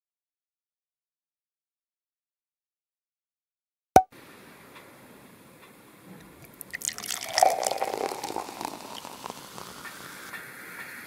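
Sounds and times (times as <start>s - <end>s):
sparkling wine pouring into glass: 6.4s - 10.8s
fizzing foam hiss: 6.6s - 11.0s.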